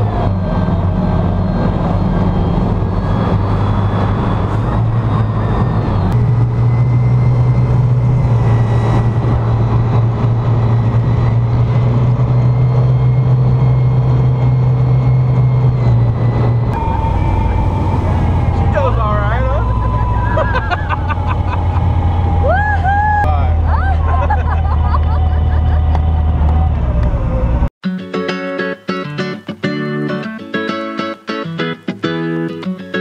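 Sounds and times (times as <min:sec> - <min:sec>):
speedboat engine running hard: 0:00.0 - 0:22.6.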